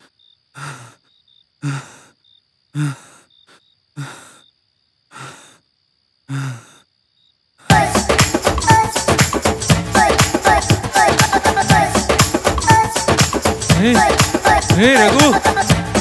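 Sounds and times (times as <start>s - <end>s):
man panting heavily: 0.0s - 2.2s, 2.8s - 4.5s, 5.1s - 5.6s, 6.3s - 6.8s.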